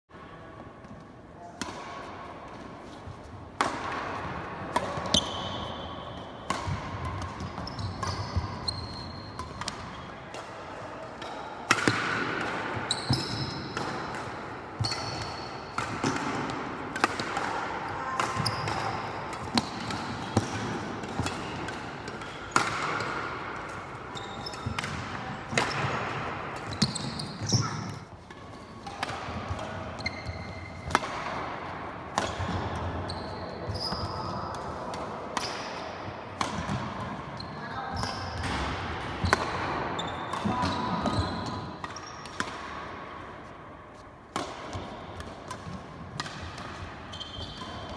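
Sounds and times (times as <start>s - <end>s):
rackets striking shuttlecock: 1.6s - 2.7s, 3.6s - 33.1s, 33.7s - 37.2s, 38.0s - 47.9s
shoes squeaking: 7.4s - 10.1s, 14.8s - 15.5s, 23.8s - 24.8s, 26.6s - 28.8s, 29.9s - 30.8s, 39.2s - 42.4s, 47.1s - 47.9s.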